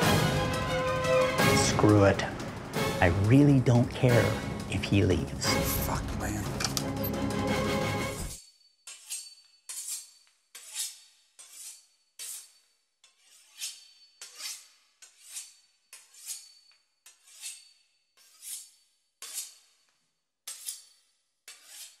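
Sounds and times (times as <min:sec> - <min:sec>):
knife sawing through pastry crust: 0:08.9 - 0:22.0.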